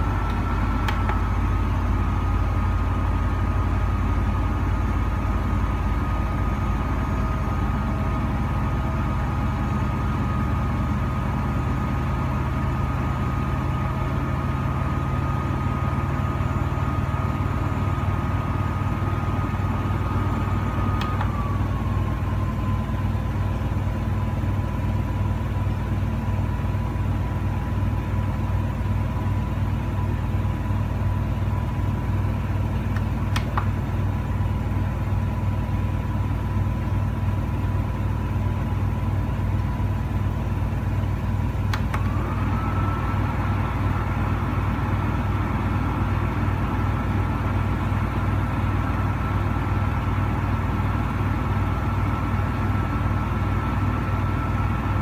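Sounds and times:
air purifier fan humming: 0:00.0 - 0:02.0, 0:18.9 - 0:22.4, 0:32.7 - 0:34.1, 0:41.5 - 0:47.1
switch click: 0:32.9 - 0:33.7, 0:41.7 - 0:42.1.

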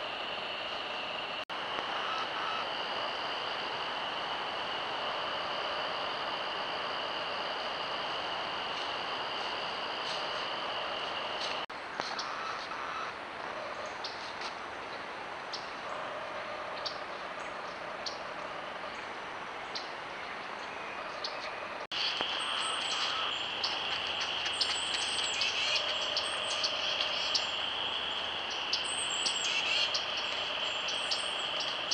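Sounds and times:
steady hiss: 0:00.0 - 0:12.3, 0:21.9 - 0:31.9
high-pitched whine: 0:00.0 - 0:14.7, 0:15.6 - 0:31.9
small birds chirping: 0:19.7 - 0:31.9.

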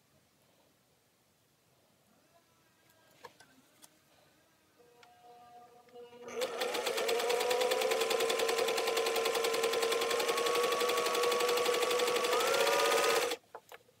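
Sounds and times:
sewing machine stitching: 0:06.2 - 0:13.4.

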